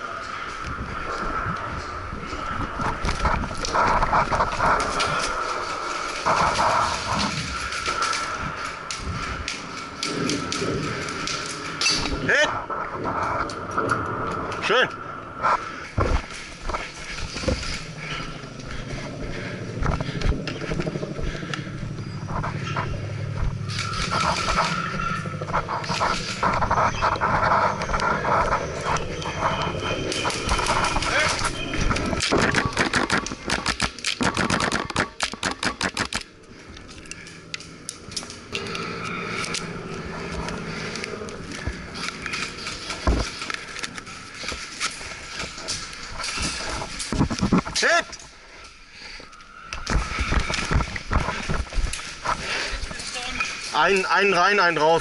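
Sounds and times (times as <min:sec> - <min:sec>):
steady low hum: 0:00.0 - 0:55.0
airsoft gear clicks and knocks: 0:30.1 - 0:53.7
airsoft guns firing: 0:32.2 - 0:36.3.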